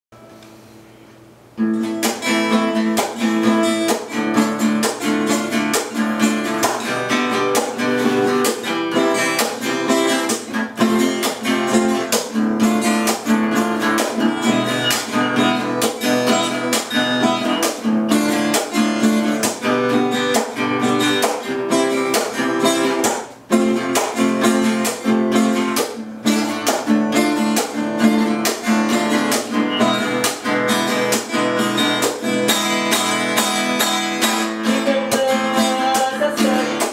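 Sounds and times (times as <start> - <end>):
acoustic guitar playing: 0.2 - 36.9.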